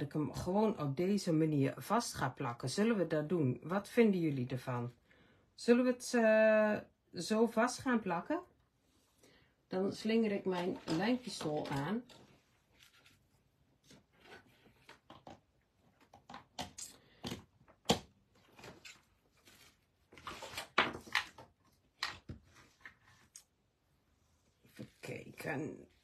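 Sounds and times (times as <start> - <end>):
tools handled on wooden table: 10.5 - 12.4.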